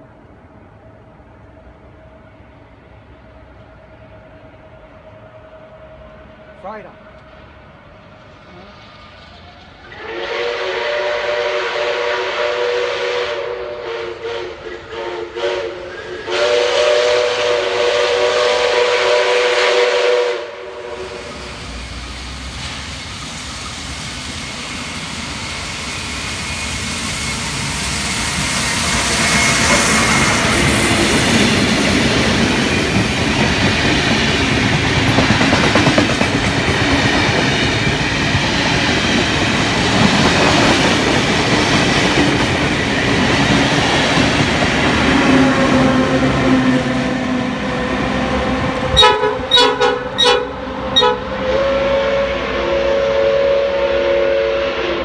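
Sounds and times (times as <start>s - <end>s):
train passing over track: 0.0s - 55.0s
steam locomotive whistle blasts: 9.9s - 21.8s, 48.8s - 55.0s.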